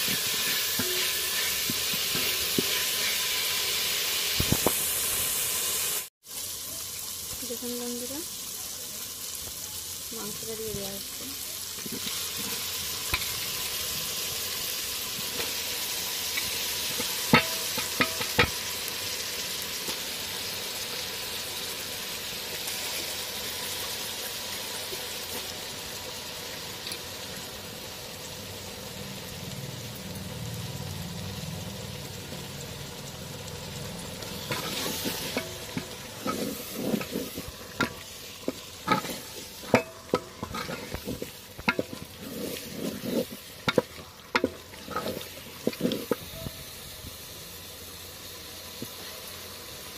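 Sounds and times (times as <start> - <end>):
spatula scraping a pot: 0.0 - 3.7, 34.3 - 46.3
meat sizzling in oil: 0.0 - 49.9.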